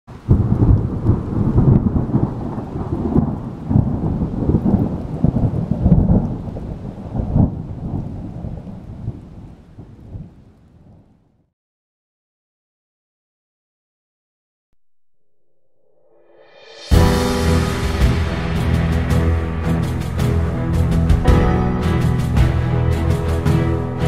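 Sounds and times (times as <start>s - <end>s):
thunder rumbling: 0.1s - 11.1s, 16.4s - 24.0s.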